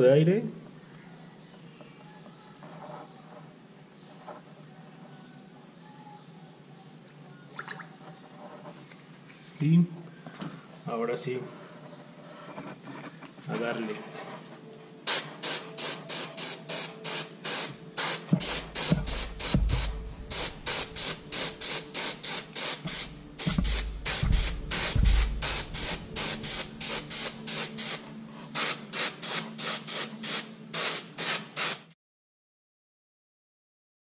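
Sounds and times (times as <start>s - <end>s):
airbrush spraying hissing bursts: 15.1s - 31.9s
dull thumps: 18.3s - 21.3s, 22.8s - 26.8s
steady low hum: 18.3s - 28.3s.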